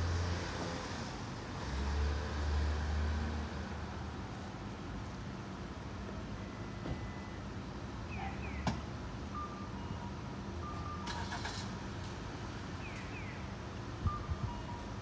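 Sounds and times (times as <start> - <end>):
street traffic hum: 0.0 - 15.0
car pulling away: 11.0 - 11.8.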